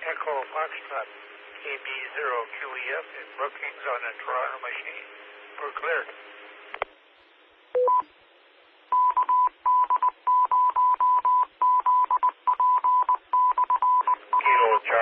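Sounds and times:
morse code beep tone: 0:07.8 - 0:08.1, 0:08.9 - 0:14.9.

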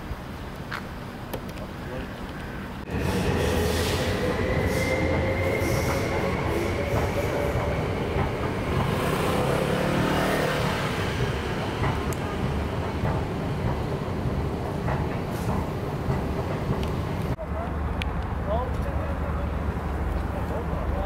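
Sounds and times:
drawn-out whining tones: 0:02.8 - 0:13.3.

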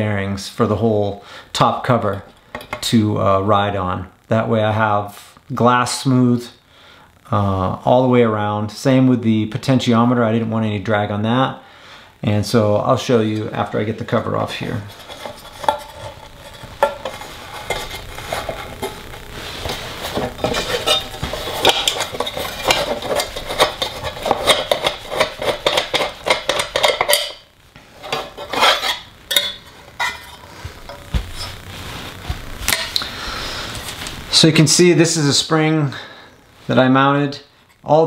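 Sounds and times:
metal parts clinking and scraping: 0:14.9 - 0:27.4, 0:28.0 - 0:31.1.

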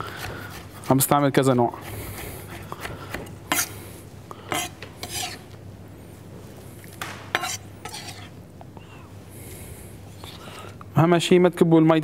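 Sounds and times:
knife scraping on wooden board: 0:01.7 - 0:03.9, 0:04.5 - 0:05.6, 0:07.3 - 0:08.4.

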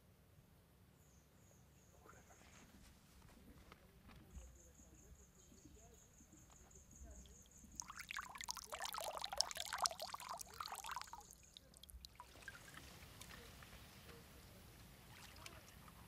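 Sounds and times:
faint steady hiss: 0:00.0 - 0:16.0
water splashing and trickling: 0:07.1 - 0:14.0, 0:15.0 - 0:16.0
sea cucumber squirting water: 0:07.6 - 0:13.4.

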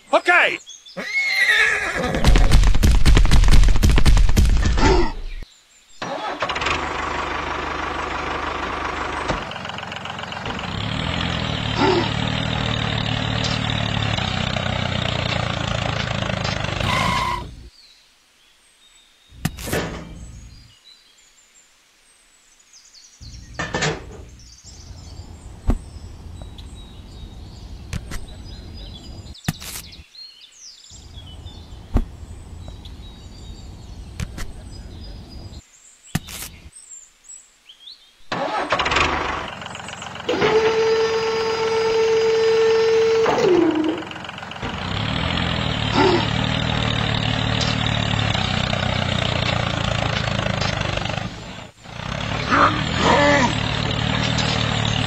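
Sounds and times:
toy tractor engine whine: 0:06.0 - 0:17.6, 0:38.3 - 0:55.0.

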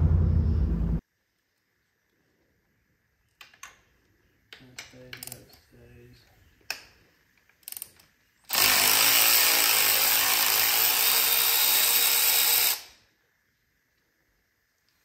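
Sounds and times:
power tool running: 0:08.5 - 0:12.9.

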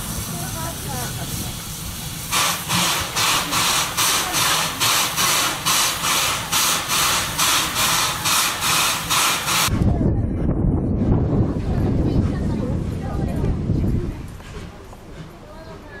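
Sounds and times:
steam locomotive chuffing: 0:00.0 - 0:09.8, 0:14.2 - 0:16.0.

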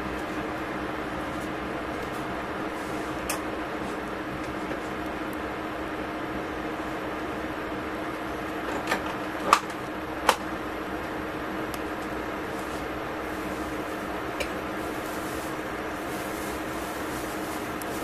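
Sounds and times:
kitchen appliance hum: 0:00.0 - 0:18.0.

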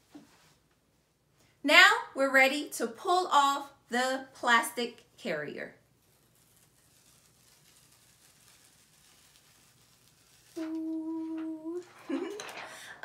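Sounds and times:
plastic sheet crinkling: 0:06.0 - 0:13.0.

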